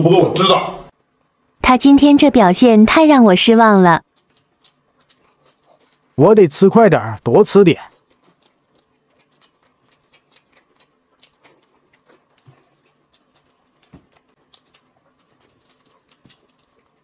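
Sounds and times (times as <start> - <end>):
people chewing: 3.5 - 17.0.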